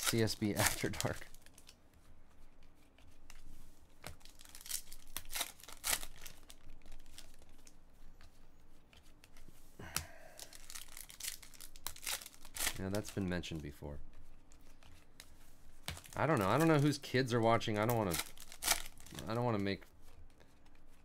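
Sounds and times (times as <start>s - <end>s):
foil wrapper crinkling and tearing: 0.0s - 1.8s, 4.2s - 7.5s, 10.4s - 13.3s, 16.0s - 19.6s
cards rustling and clicking: 0.0s - 21.0s.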